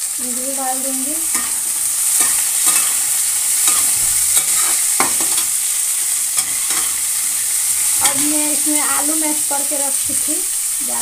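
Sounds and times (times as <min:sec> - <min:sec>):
vegetables sizzling in a pan: 0:00.0 - 0:11.0
spatula scraping a metal pan: 0:01.3 - 0:05.6, 0:06.4 - 0:07.1.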